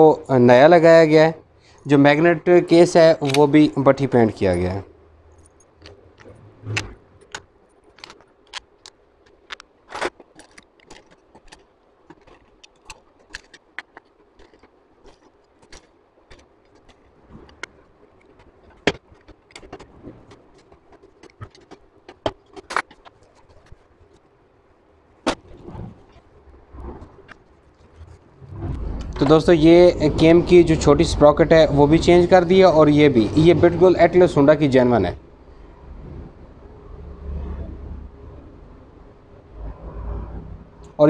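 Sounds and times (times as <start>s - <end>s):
metallic clicks of tool and bolts: 3.2s - 3.6s.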